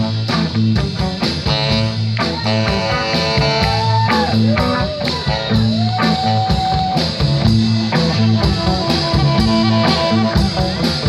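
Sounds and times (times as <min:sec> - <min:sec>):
bending lead guitar note: 0:00.0 - 0:11.0
blues-rock band playing: 0:00.0 - 0:11.0.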